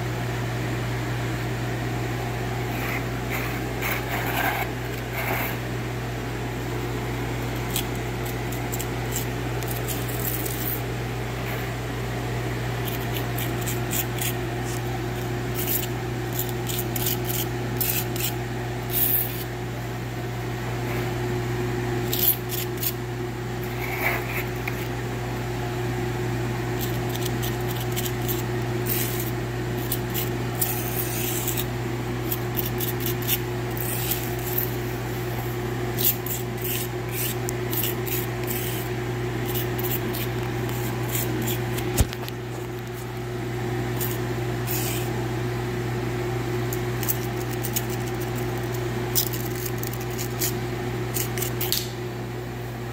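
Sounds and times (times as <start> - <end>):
putty knife scraping grout on tiles: 2.7 - 5.6, 26.8 - 31.7, 36.0 - 42.2, 44.0 - 45.1.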